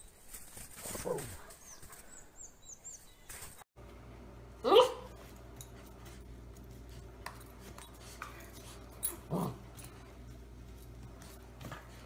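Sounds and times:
low hum: 0:03.8 - 0:12.0
puppy barking: 0:04.6 - 0:05.2.

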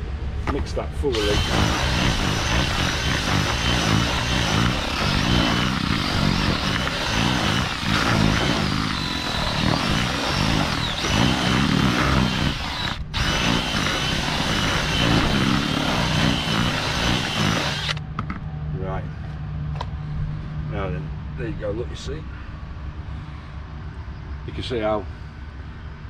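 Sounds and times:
electric drill mixing bait: 0:01.1 - 0:18.0.

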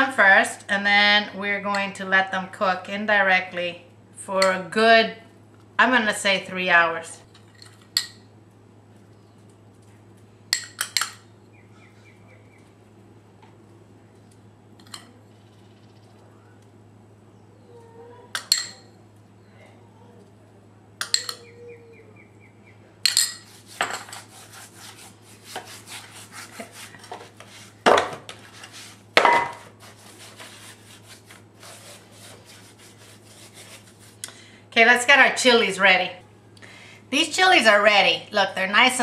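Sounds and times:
low steady hum: 0:00.0 - 0:39.0
spoon clinking on glass: 0:21.0 - 0:21.5, 0:23.0 - 0:23.4
hands rubbing meat in metal pan: 0:23.4 - 0:34.2.

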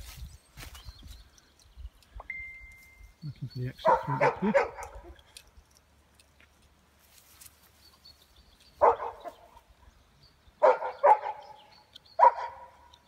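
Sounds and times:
dog barking: 0:03.8 - 0:05.2, 0:08.8 - 0:09.5, 0:10.6 - 0:11.6, 0:12.2 - 0:12.8.

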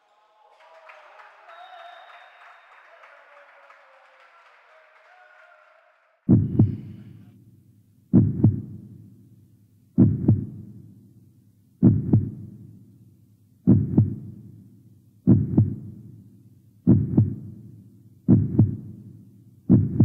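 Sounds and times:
indoor crowd and court noise: 0:00.0 - 0:07.4
heartbeat double thump: 0:06.3 - 0:07.0, 0:08.1 - 0:08.8, 0:10.0 - 0:10.7, 0:11.8 - 0:12.5, 0:13.7 - 0:14.3, 0:15.3 - 0:15.9, 0:16.9 - 0:17.5, 0:18.3 - 0:18.9, 0:19.7 - 0:20.0.

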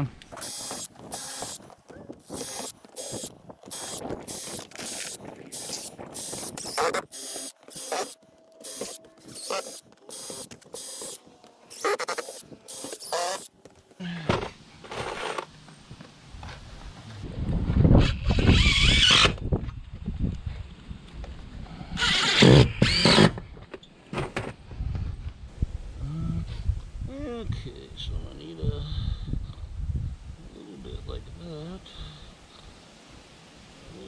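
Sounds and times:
cordless drill drilling metal: 0:00.4 - 0:01.6, 0:02.2 - 0:13.5, 0:22.0 - 0:23.4.

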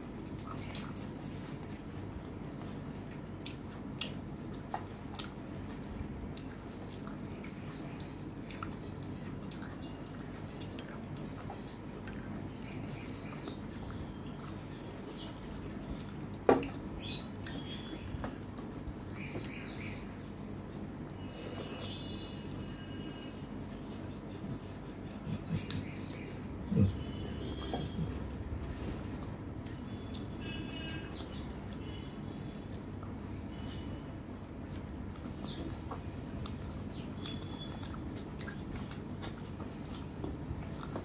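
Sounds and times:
chewing and wet mouth sounds: 0:00.0 - 0:22.2, 0:23.9 - 0:41.0
steady low hum: 0:00.0 - 0:41.0.

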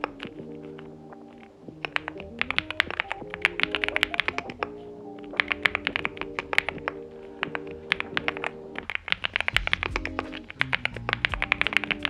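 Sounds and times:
mechanical keyboard typing: 0:00.0 - 0:12.0
soft background music: 0:00.0 - 0:12.0.

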